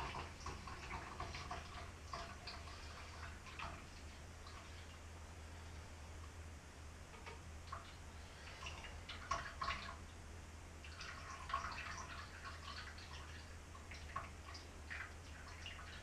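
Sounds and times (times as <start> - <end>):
liquid pouring and dripping: 0.0 - 5.0, 7.1 - 10.1, 10.8 - 16.0.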